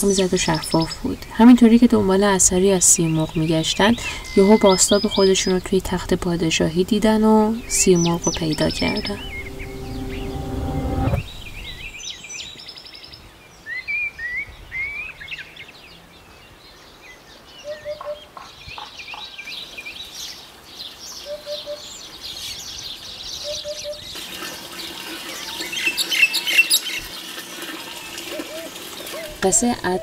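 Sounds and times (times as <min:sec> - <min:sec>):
birds chirping: 0:00.0 - 0:12.4, 0:17.3 - 0:30.0
hoopoe calling: 0:21.3 - 0:21.9, 0:23.4 - 0:29.4.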